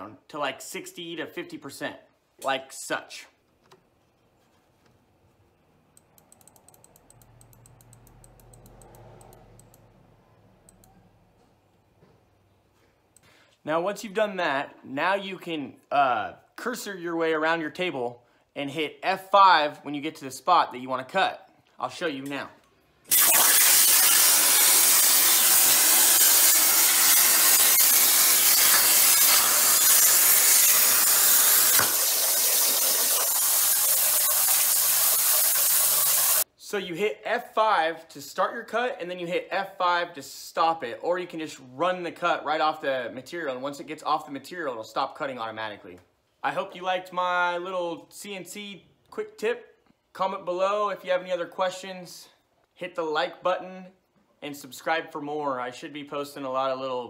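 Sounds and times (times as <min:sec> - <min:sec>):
sharp click: 0:06.0 - 0:09.9
plasma cutter hissing: 0:23.1 - 0:36.4.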